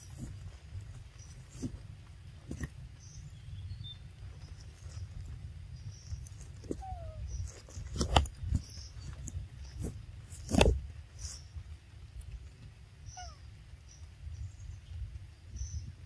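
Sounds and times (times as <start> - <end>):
macaque squeaks: 6.7 - 8.0.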